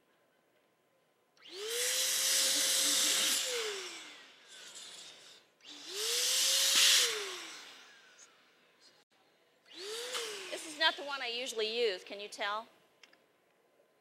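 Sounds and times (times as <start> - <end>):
electric balloon inflator whirring: 1.4 - 8.6, 9.7 - 11.3.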